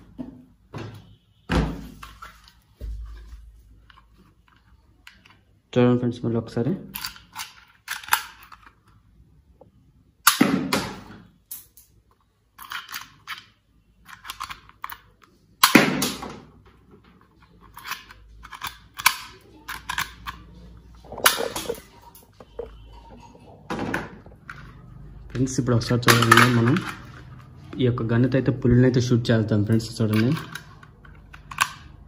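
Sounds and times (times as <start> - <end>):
toy gun loading clicks: 6.9 - 8.8, 12.6 - 15.8, 17.6 - 20.5, 30.0 - 32.0
toy dart gun firing: 10.2 - 11.1, 15.6 - 16.5.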